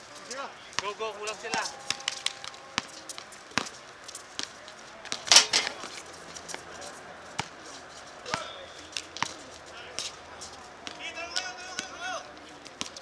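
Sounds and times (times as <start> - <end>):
feet on court: 0.0 - 13.0
players' voices: 0.0 - 13.0
basketball bouncing: 0.8 - 5.9, 7.4 - 7.6, 8.2 - 9.4, 10.8 - 12.0, 12.6 - 13.0.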